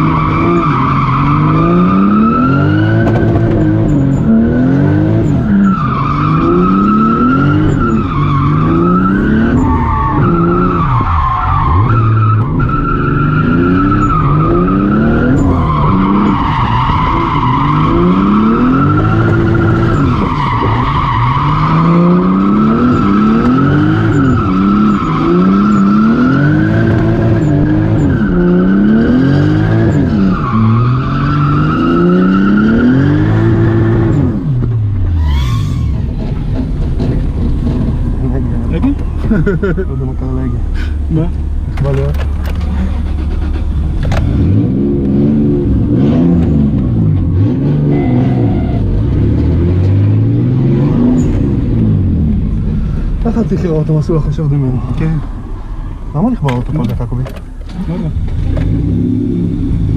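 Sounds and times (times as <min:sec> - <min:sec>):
car engine revving: 0:00.0 - 0:59.9
tyres squealing: 0:35.1 - 0:36.6.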